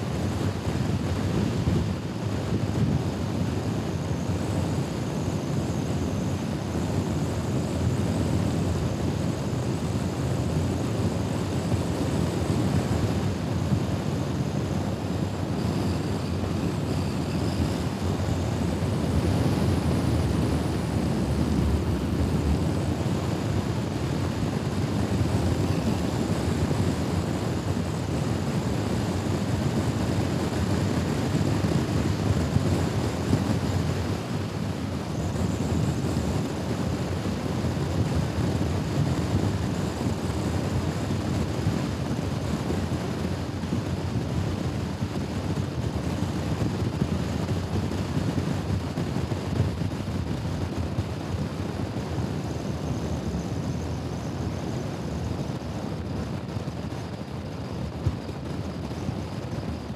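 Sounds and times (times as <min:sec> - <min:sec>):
wind noise on microphone: 0:00.0 - 0:59.9
scooter engine and road drone: 0:07.6 - 0:39.4.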